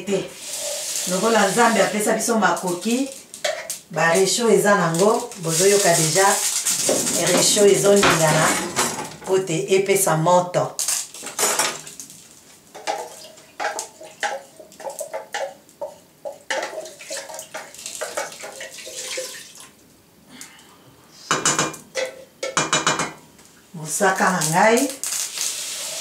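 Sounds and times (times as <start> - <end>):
utensil knocking and scraping metal pot: 5.2 - 9.4, 12.7 - 19.3, 21.4 - 23.2.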